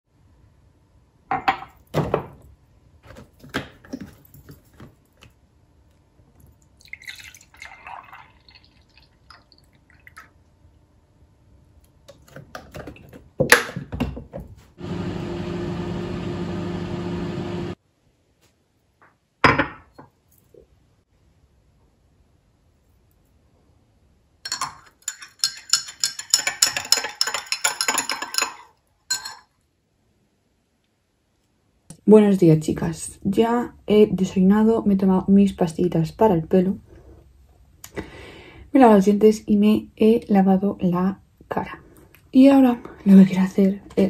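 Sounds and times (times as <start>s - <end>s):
milk pouring into glass: 6.8s - 10.4s
small appliance electric hum: 14.6s - 17.8s.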